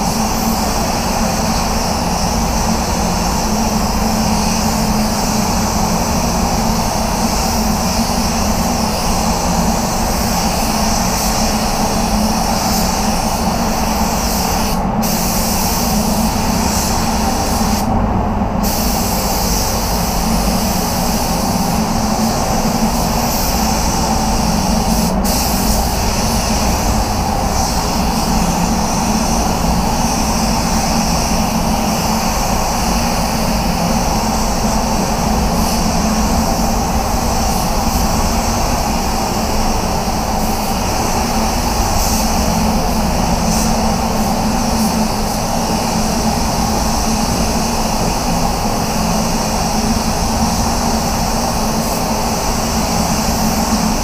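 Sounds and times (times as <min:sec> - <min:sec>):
spray gun hissing: 0:00.0 - 0:54.0
steady low drone: 0:15.8 - 0:54.0.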